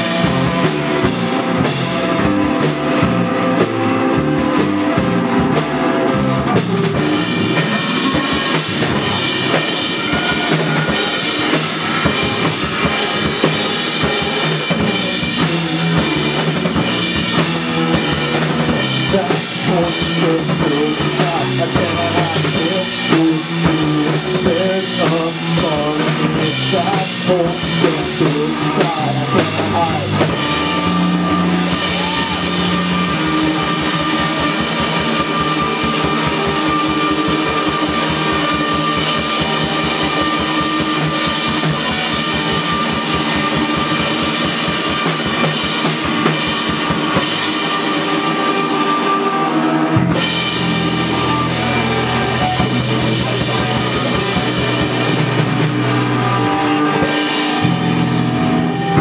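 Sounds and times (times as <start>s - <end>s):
distorted electric guitars: 0.0s - 59.0s
drum kit pounding: 0.0s - 59.0s.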